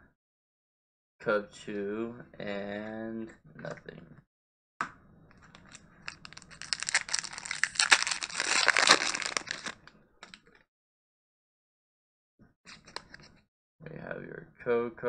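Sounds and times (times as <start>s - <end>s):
foil wrapper crinkling and tearing: 5.6s - 9.9s.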